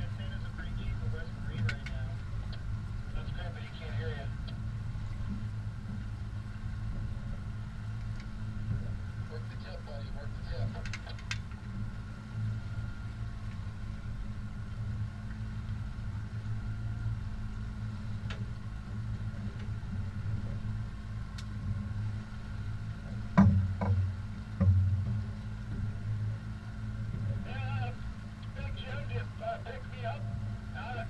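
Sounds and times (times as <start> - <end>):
outboard motor humming: 0.0 - 31.0
short thumps: 23.4 - 25.2.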